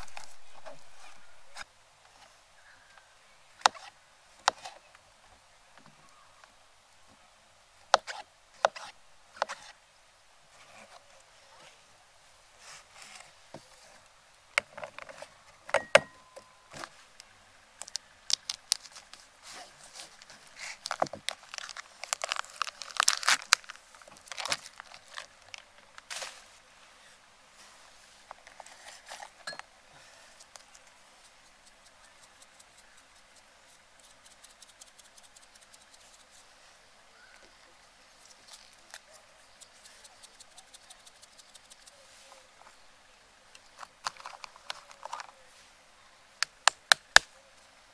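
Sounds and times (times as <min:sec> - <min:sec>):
small hard objects clinking: 0:20.7 - 0:25.3.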